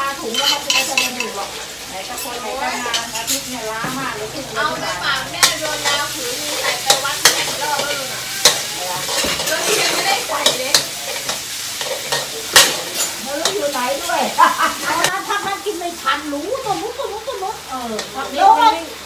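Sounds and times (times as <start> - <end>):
food sizzling: 0.0 - 19.0
spatula scraping a wok: 0.1 - 15.7
spatula clanking on pan: 0.2 - 1.5, 5.2 - 15.6.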